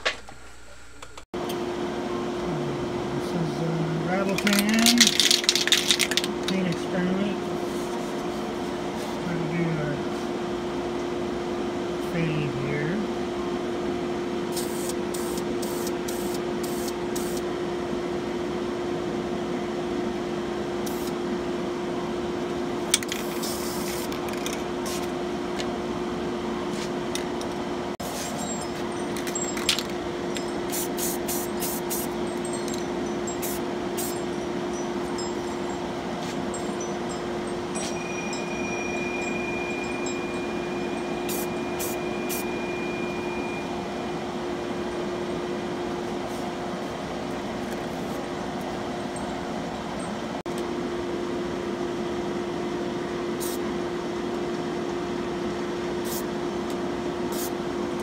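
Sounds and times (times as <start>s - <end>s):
steady mechanical hum: 0.0s - 58.0s
spray paint can hissing: 14.5s - 17.4s, 20.9s - 21.2s, 23.2s - 24.1s, 30.7s - 32.1s, 33.4s - 34.1s, 41.3s - 42.4s, 53.4s - 53.6s, 56.0s - 56.2s, 57.3s - 57.5s
faint high whine: 28.2s - 45.9s.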